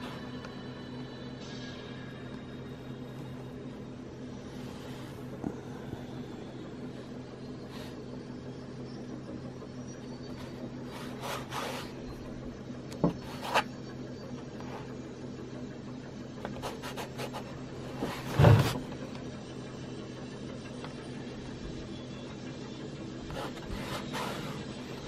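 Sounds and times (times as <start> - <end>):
steady low hum: 0.0 - 25.0
paintbrush scrubbing canvas: 16.6 - 18.5.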